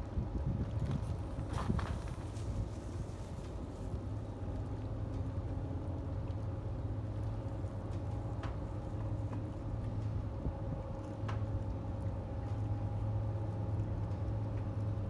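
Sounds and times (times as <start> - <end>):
faint ticks: 3.1 - 15.0.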